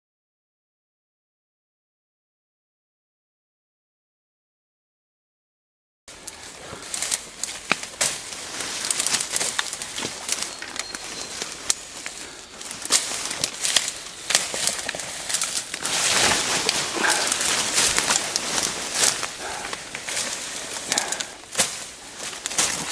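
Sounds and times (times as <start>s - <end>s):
leaves rustling: 6.1s - 22.9s
twigs cracking: 6.1s - 22.9s.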